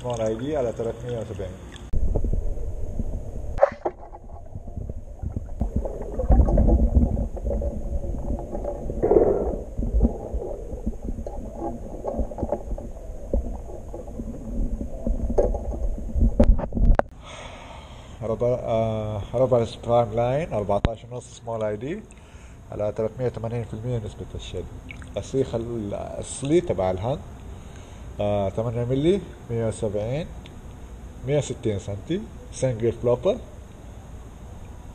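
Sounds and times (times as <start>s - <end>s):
underwater rumbling water: 1.9s - 17.1s
underwater knocks: 2.0s - 17.1s.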